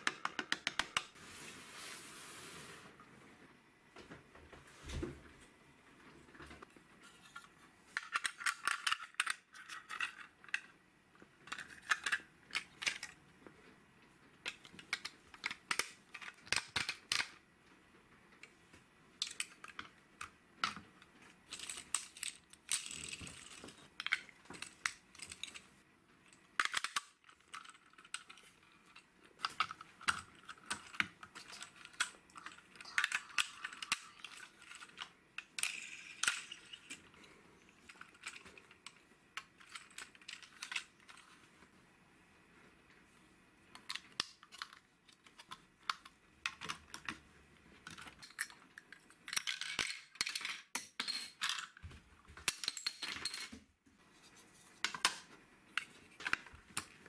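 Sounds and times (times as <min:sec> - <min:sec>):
plastic toy bricks clicking: 0:00.0 - 0:01.1, 0:08.0 - 0:10.7, 0:11.4 - 0:13.2, 0:14.4 - 0:17.4, 0:19.2 - 0:20.8, 0:26.3 - 0:37.1, 0:43.8 - 0:47.2.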